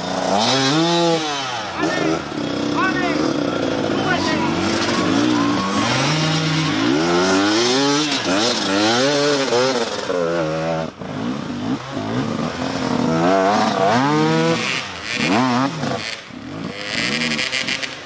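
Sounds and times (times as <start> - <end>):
dirt bike engine revving: 0.0 - 18.0.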